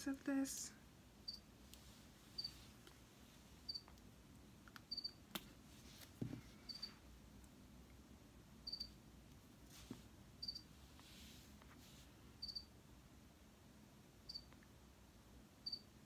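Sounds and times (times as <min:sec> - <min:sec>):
cricket chirping: 0:08.7 - 0:08.9, 0:10.4 - 0:10.6, 0:12.4 - 0:12.7, 0:14.3 - 0:14.5, 0:15.6 - 0:15.8.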